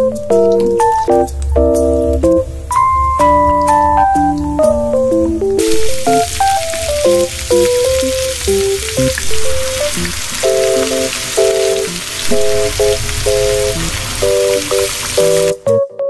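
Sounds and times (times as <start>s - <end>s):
batter deep-frying in hot oil: 0.0s - 2.2s, 5.1s - 15.6s.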